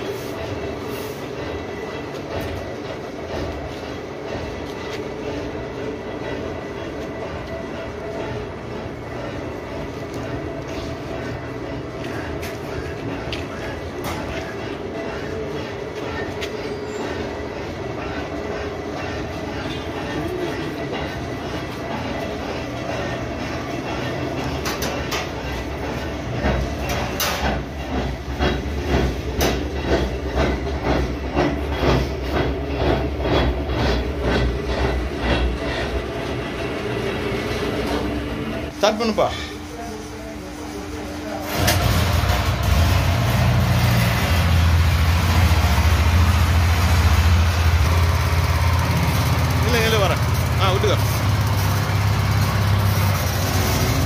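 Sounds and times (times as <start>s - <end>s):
small petrol engine humming: 41.4s - 54.0s.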